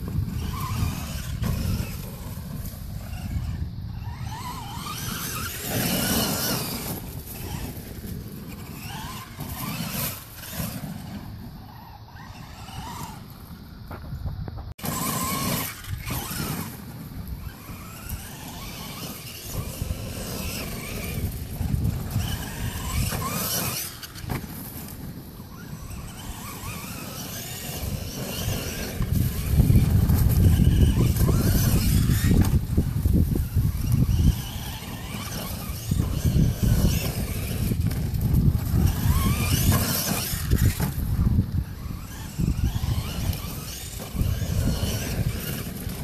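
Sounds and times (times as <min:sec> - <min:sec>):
electric motor whining: 0:00.0 - 0:46.0.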